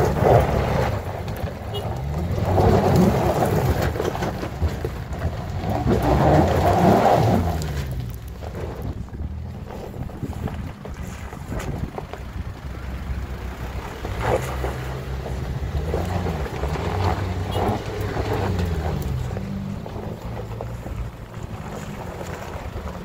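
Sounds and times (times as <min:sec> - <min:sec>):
truck engine pulling under load: 0:00.0 - 0:23.0.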